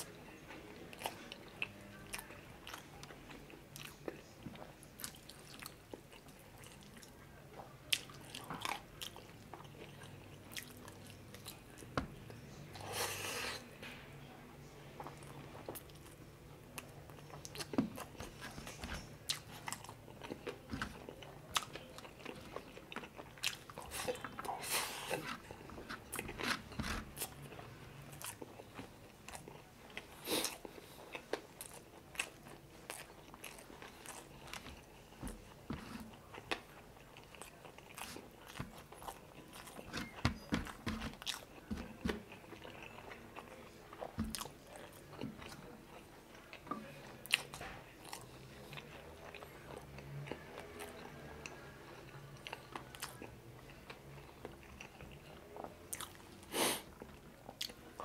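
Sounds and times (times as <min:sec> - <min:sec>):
person chewing: 0:16.8 - 0:51.1, 0:52.4 - 0:58.0.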